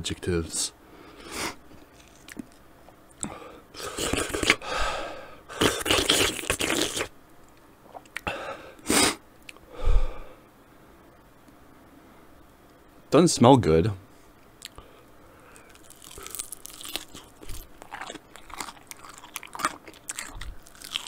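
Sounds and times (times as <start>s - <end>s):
man breathing out hard: 4.6s - 5.4s, 9.7s - 10.5s
small wet mouth clicks: 7.9s - 8.3s.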